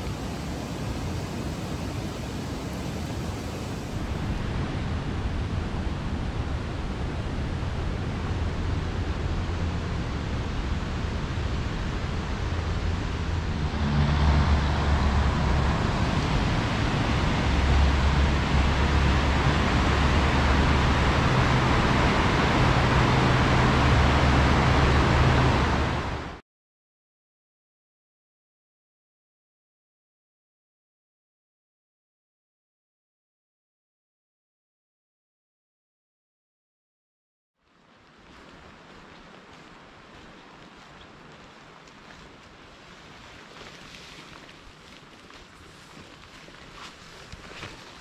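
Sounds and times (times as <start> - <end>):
rushing whitewater roar: 0.0 - 26.4.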